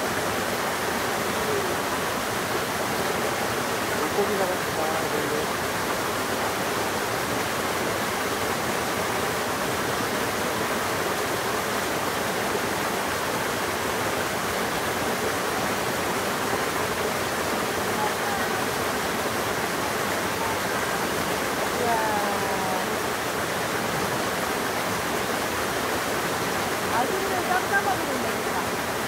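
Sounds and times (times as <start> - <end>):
waterfall splashing over rocks: 0.0 - 29.0.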